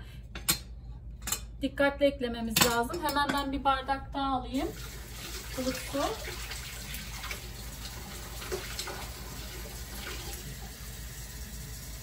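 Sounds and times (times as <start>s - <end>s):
tap water running into a glass: 4.7s - 12.0s.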